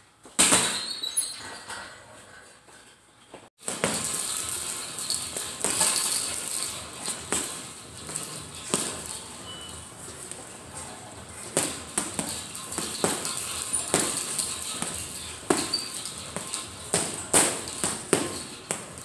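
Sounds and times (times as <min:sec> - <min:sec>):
punches hitting heavy bag: 0:03.6 - 0:04.2, 0:07.0 - 0:07.8, 0:11.6 - 0:19.0
chains jingling and rattling: 0:03.6 - 0:19.0.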